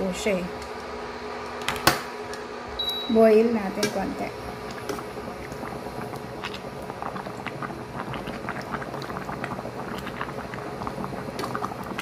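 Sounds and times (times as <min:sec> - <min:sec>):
soup bubbling in a pot: 0:04.3 - 0:12.0.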